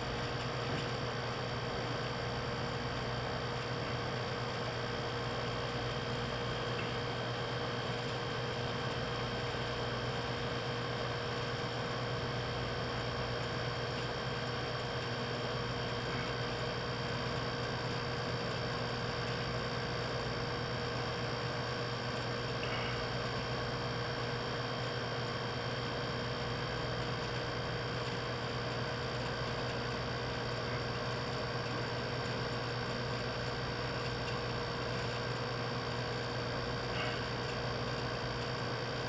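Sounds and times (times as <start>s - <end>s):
steady hum and hiss: 0.0s - 39.0s.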